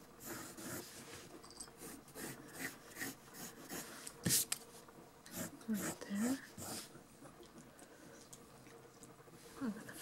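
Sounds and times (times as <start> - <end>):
pencil scratching on paper: 0.2 - 1.1, 1.8 - 4.5, 5.3 - 6.9.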